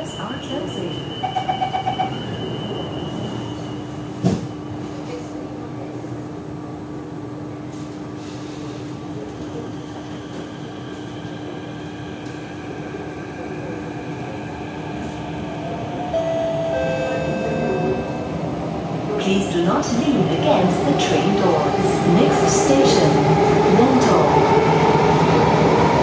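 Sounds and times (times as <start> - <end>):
door warning beeps: 0.0 - 3.7
train car humming: 0.0 - 26.0.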